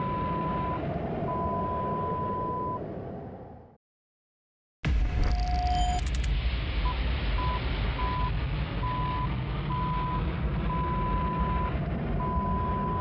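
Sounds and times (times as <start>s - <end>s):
repeating beep: 5.2s - 6.3s
jet engine rumble: 5.4s - 13.0s.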